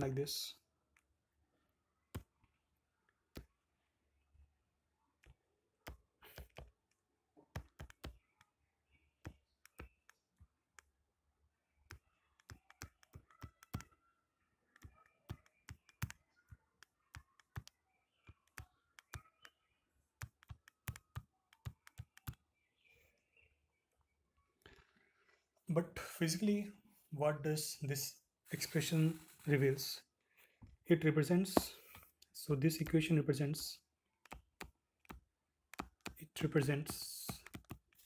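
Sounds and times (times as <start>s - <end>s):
stylus tapping on tablet screen: 2.1s - 2.5s, 5.3s - 8.6s, 9.2s - 11.0s, 11.8s - 14.0s, 14.7s - 22.4s, 34.2s - 38.0s.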